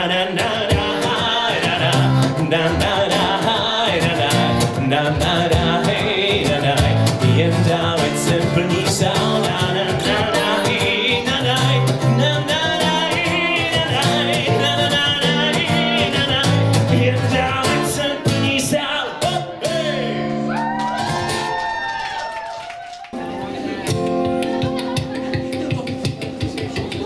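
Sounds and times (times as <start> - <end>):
man singing: 0.0 - 20.5
strummed acoustic guitar: 0.0 - 21.5, 23.2 - 27.0.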